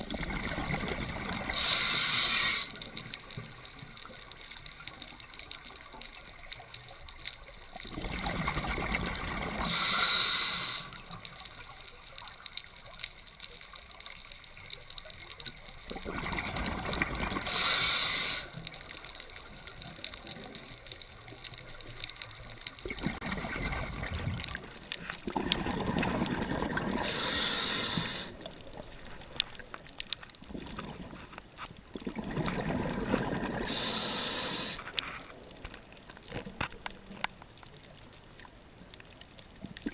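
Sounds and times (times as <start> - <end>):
rush of bubbles: 0.0 - 2.8, 7.8 - 11.2, 15.8 - 18.5, 22.8 - 29.3, 30.5 - 31.3, 31.9 - 34.9
diver breathing through regulator: 1.5 - 2.8, 9.6 - 11.0, 17.4 - 18.6, 26.9 - 28.4, 33.6 - 34.9.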